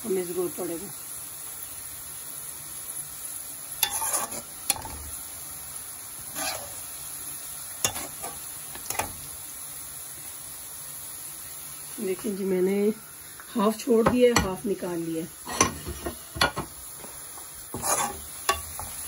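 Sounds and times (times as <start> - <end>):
onions sizzling in oil: 0.0 - 19.0
metal spoon scraping pan: 3.8 - 5.0, 6.3 - 6.8, 7.8 - 9.2, 15.4 - 16.6, 17.7 - 19.0.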